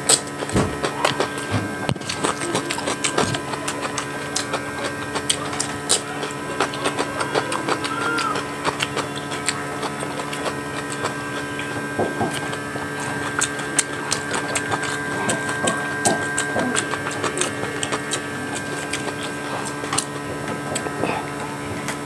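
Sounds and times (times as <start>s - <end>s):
electrical hum: 0.0s - 22.0s
person chewing with wet clicks: 0.0s - 22.0s.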